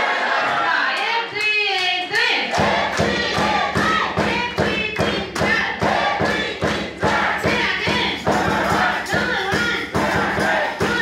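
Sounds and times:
dance music with thumping drum beat: 0:02.5 - 0:11.0.

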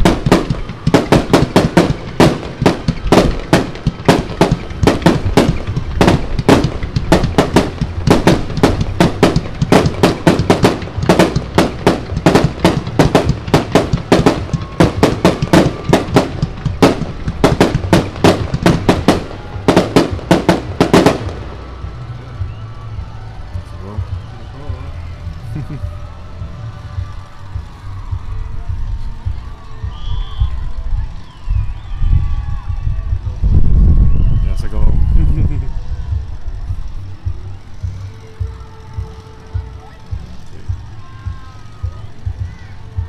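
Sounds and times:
fireworks bangs: 0:00.0 - 0:22.6.

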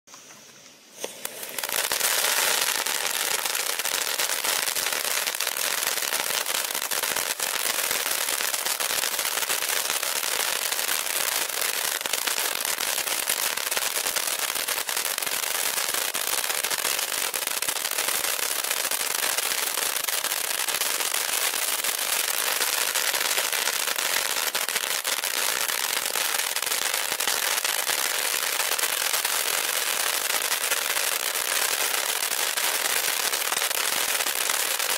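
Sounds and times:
crackling pops: 0:00.1 - 0:07.4
firework fountain hissing: 0:00.1 - 0:34.9.

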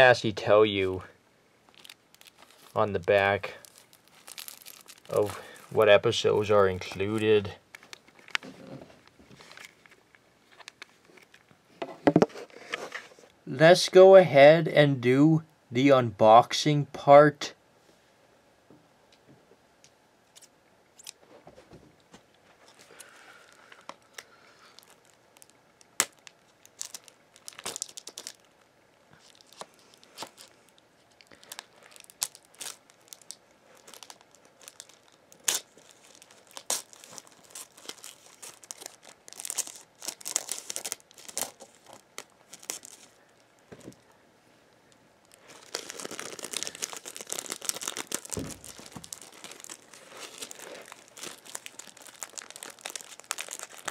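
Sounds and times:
plastic wrap crinkling and tearing: 0:01.7 - 0:11.4, 0:22.6 - 0:44.0, 0:45.2 - 0:53.9.

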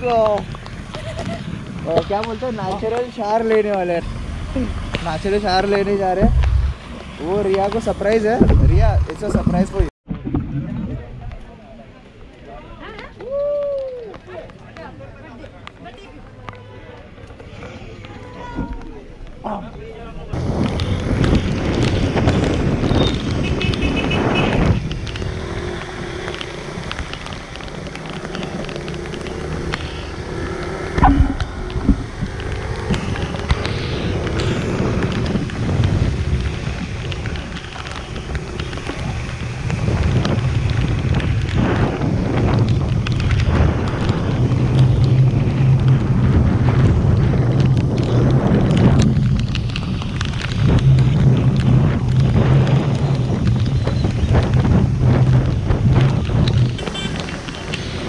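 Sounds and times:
wind buffeting microphone: 0:00.0 - 0:11.4, 0:18.0 - 0:58.0
low engine hum: 0:25.0 - 0:58.0.

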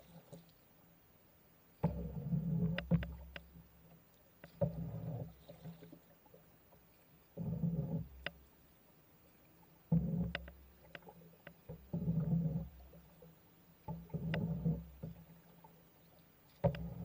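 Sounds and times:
paddle strokes in water: 0:00.0 - 0:01.0, 0:01.7 - 0:17.0
paddle knocking on boat: 0:01.8 - 0:03.5, 0:16.6 - 0:17.0.

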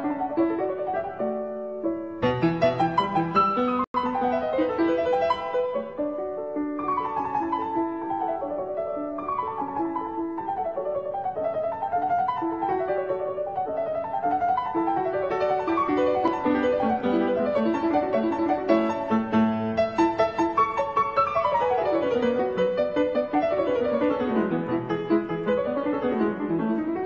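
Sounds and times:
classical piano music: 0:00.0 - 0:27.0.

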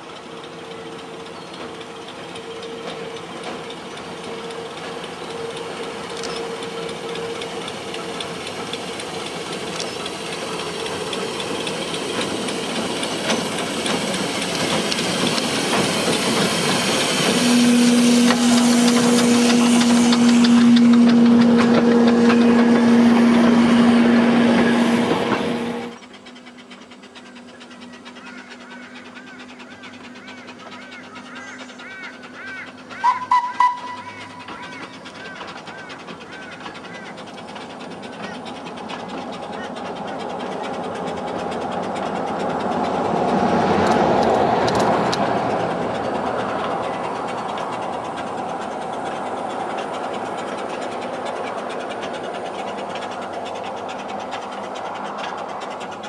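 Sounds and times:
steam locomotive chugging: 0:00.0 - 0:56.0
steady pitched whistle note: 0:33.0 - 0:34.2.

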